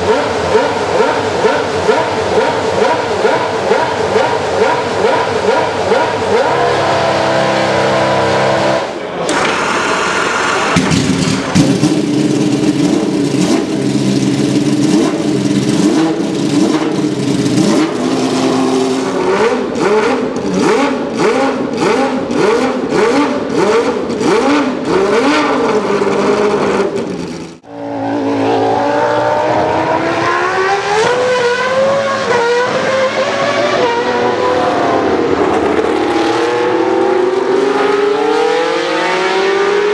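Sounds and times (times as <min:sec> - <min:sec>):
racing car engine revving: 0:00.0 - 0:39.9
racing car engine idling: 0:09.3 - 0:22.4
racing car accelerating through gears: 0:27.7 - 0:39.9.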